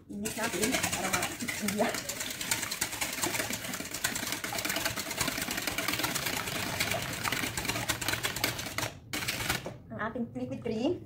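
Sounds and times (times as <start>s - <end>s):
whisk beating in metal bowl: 0.1s - 9.7s.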